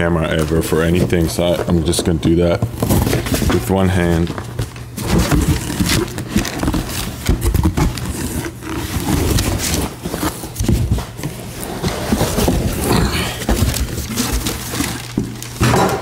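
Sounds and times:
cardboard boxes scraping and rubbing: 5.0 - 15.2.

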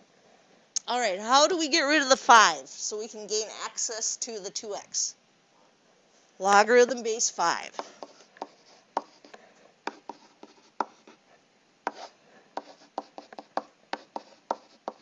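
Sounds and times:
stylus tapping on tablet: 7.8 - 11.1, 12.6 - 15.0.

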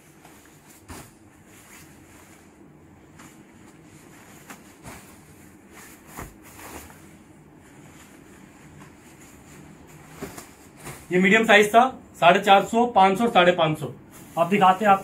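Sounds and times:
jackets rustling and knocking: 0.0 - 11.4
low background noise: 0.0 - 15.0.

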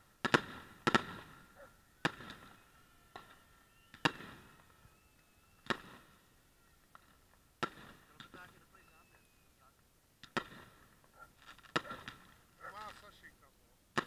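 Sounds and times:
firework shells bursting: 0.1 - 9.5, 10.2 - 13.2
faint high whistle: 1.5 - 6.9, 8.5 - 9.7.

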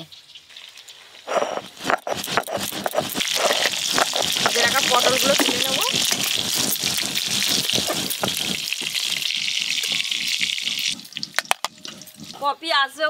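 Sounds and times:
vegetables sizzling in hot oil: 2.6 - 12.4.

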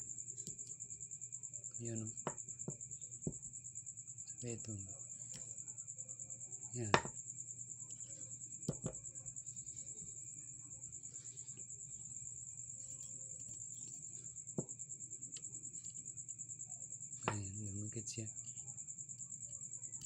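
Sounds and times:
crickets trilling: 0.0 - 20.0
magnet knocking against stones: 6.8 - 7.2, 8.6 - 9.0, 17.2 - 17.6.

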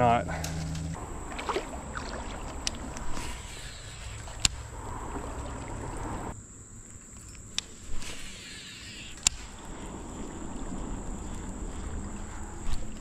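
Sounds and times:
water sloshing around wading legs: 0.0 - 13.0
sharp clicks: 2.5 - 4.7, 7.2 - 9.6.

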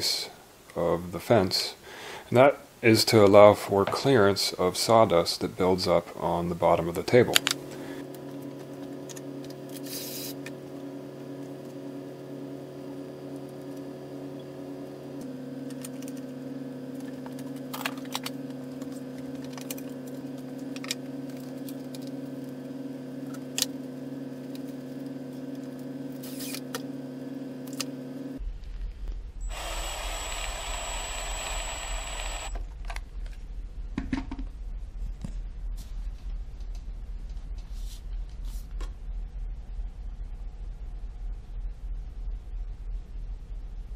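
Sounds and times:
steady machine hum: 4.8 - 37.6
cordless drill whining: 29.4 - 32.6.

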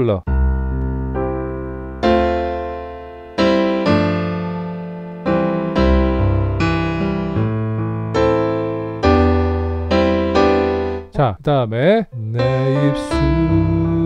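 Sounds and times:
slow piano chords: 0.0 - 11.1, 12.1 - 14.0.

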